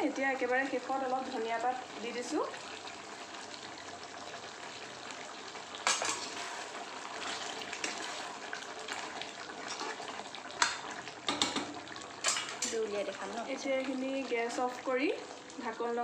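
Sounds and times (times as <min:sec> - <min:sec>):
gravy bubbling and sizzling: 0:00.0 - 0:16.0
spoon scraping pan: 0:05.8 - 0:12.8.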